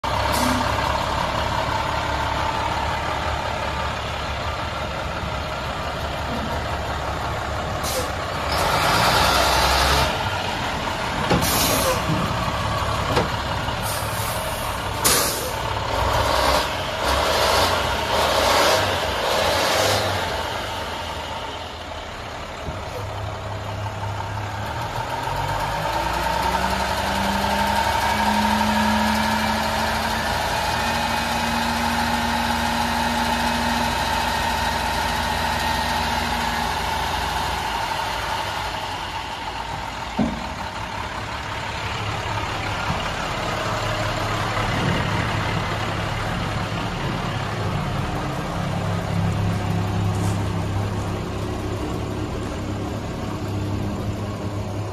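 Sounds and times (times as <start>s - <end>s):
diesel truck engine: 0.0s - 54.9s.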